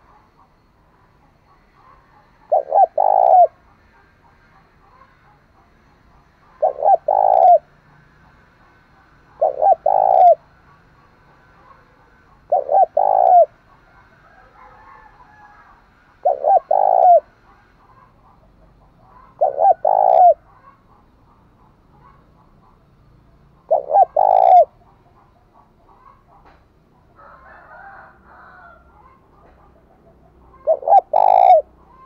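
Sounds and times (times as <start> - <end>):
dove cooing: 1.5 - 5.5, 6.2 - 7.7, 8.7 - 22.8, 23.5 - 26.5, 27.1 - 32.0.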